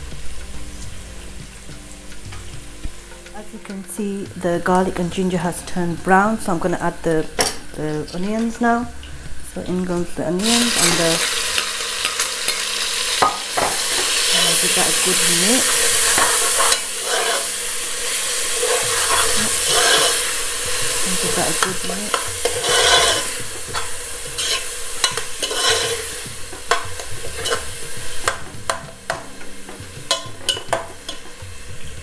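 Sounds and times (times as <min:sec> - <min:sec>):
onions sizzling in hot oil: 0:00.0 - 0:32.0
metal spoon scraping pot: 0:10.4 - 0:31.4.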